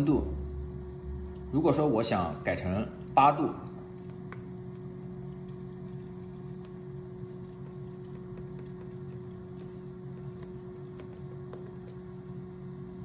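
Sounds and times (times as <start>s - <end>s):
electrical hum of water bath: 0.0s - 13.0s.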